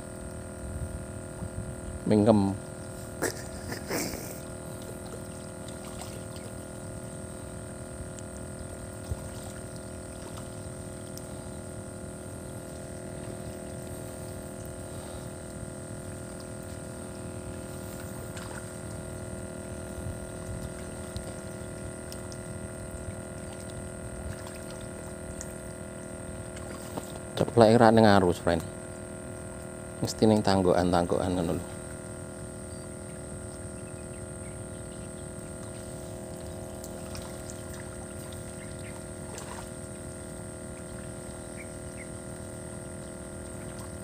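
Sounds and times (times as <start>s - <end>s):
steady tonal hum: 0.0s - 44.0s
water-like noise: 0.0s - 44.0s.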